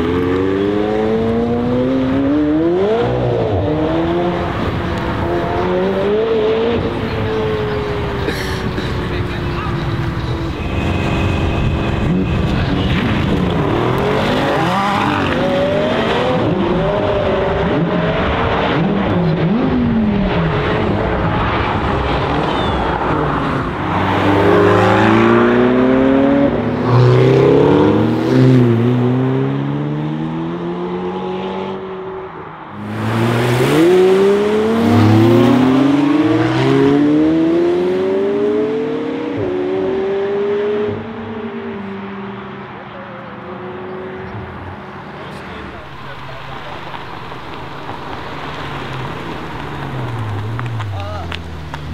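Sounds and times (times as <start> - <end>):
car engine accelerating hard: 0.0 - 42.7
second car engine revving: 32.7 - 42.5.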